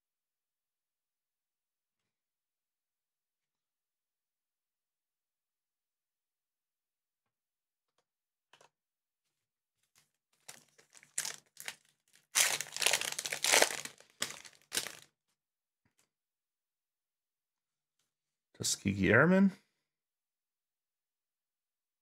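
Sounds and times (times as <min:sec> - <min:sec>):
wrapper crinkling as torn open: 0:10.4 - 0:15.1.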